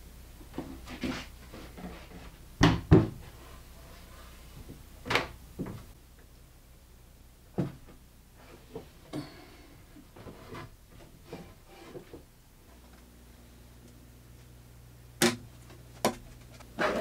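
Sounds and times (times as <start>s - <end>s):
wooden cabinet doors knocking shut: 2.6s - 3.2s.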